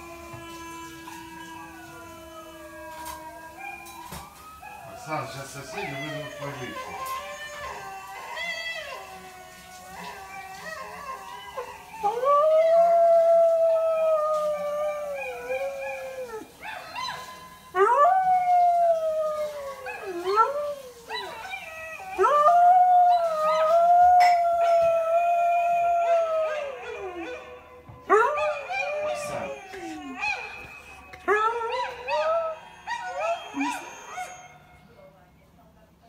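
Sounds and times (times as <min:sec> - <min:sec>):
dog howling: 0:00.0 - 0:35.0
dog yelping: 0:26.8 - 0:34.8.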